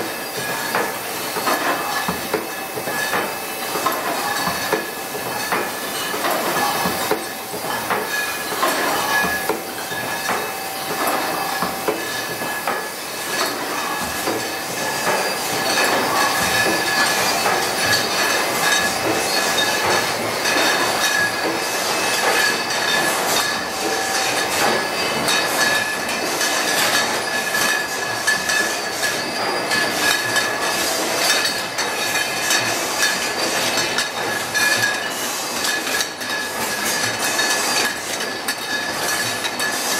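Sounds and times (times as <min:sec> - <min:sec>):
high-pitched machine whine: 0:00.0 - 0:33.5
glass bottles clinking: 0:00.3 - 0:39.9.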